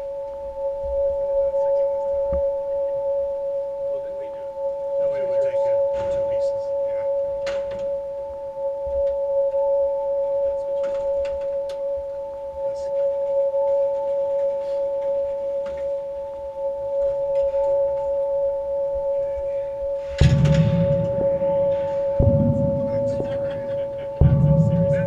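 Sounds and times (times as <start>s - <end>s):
elevator humming: 6.9s - 25.0s.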